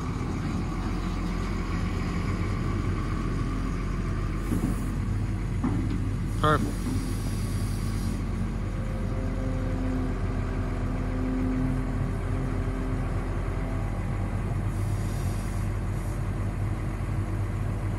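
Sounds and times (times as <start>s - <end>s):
diesel engine running: 0.0s - 17.9s
hydraulic whine: 4.3s - 16.3s.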